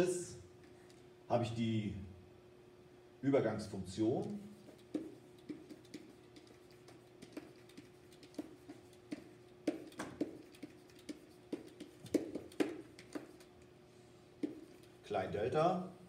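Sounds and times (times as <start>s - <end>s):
steady hum: 0.0s - 16.0s
stylus tapping and scraping on whiteboard: 4.2s - 13.6s, 14.4s - 15.0s.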